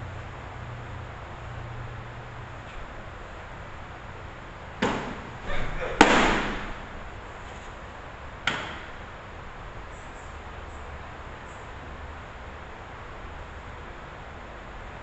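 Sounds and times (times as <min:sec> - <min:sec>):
ball landing in glove: 0:04.8 - 0:06.8.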